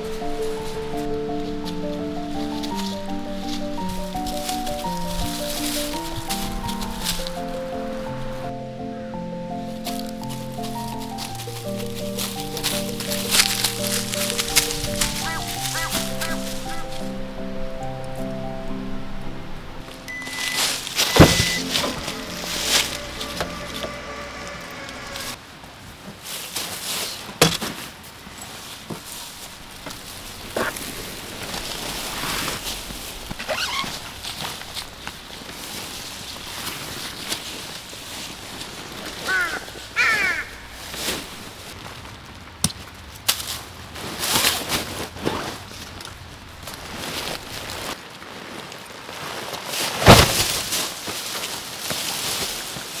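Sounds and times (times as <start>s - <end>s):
crow cawing: 13.9s - 17.1s, 39.1s - 41.0s
faint ringing tone: 20.1s - 25.4s.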